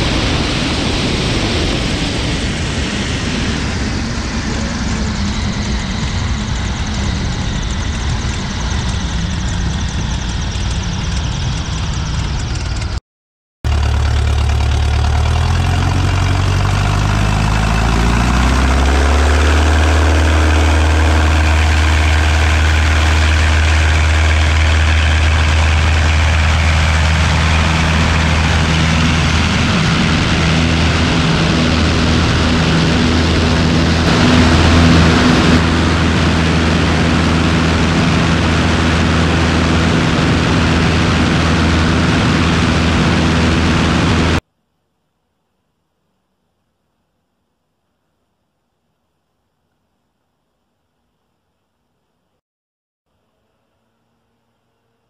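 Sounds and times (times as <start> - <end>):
biplane engine and propeller: 0.0 - 13.0, 13.7 - 44.4
wind rushing: 17.2 - 44.4.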